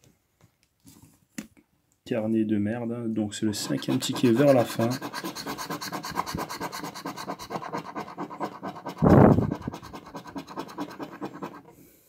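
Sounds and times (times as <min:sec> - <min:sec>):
coin scraping scratch-off ticket: 0:03.6 - 0:11.7.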